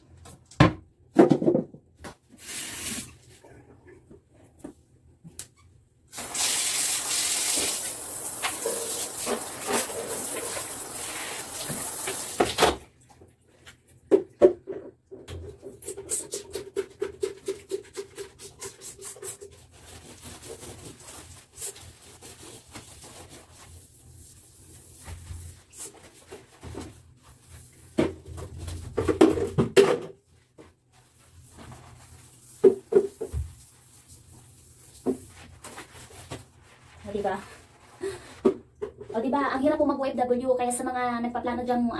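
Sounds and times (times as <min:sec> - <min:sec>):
water spray hissing: 0:06.2 - 0:12.4
sponge scrubbing on tiles and glass: 0:06.3 - 0:12.4, 0:15.7 - 0:26.6, 0:30.9 - 0:38.0.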